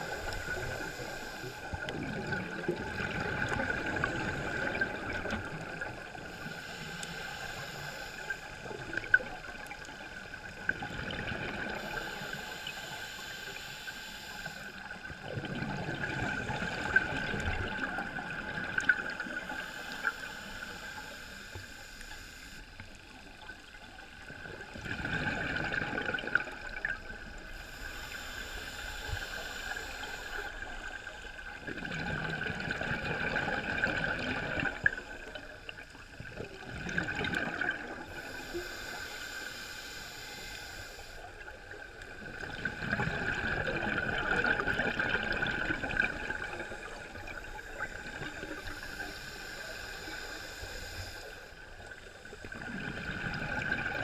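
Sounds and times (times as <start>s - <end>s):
regulator hiss on inhale: 0.0s - 2.8s, 3.4s - 54.0s
exhaled bubbles rumbling: 0.0s - 6.4s, 15.0s - 19.6s, 24.2s - 27.4s, 31.0s - 38.3s, 41.7s - 48.8s, 52.3s - 54.0s.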